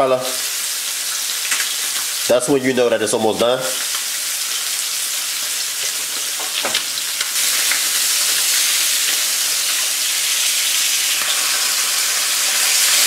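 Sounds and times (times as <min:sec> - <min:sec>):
fish sizzling in a frying pan: 0:00.0 - 0:02.8, 0:03.4 - 0:13.0.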